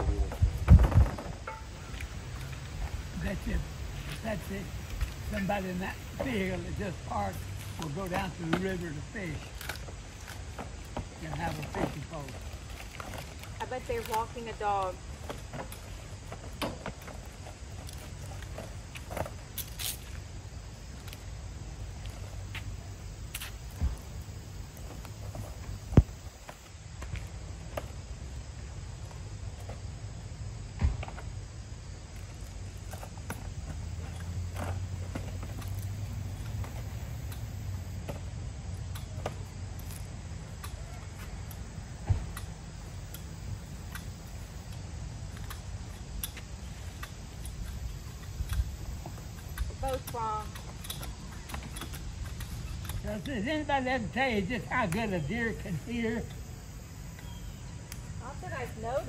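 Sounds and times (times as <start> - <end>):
footsteps on concrete: 21.9 - 27.4.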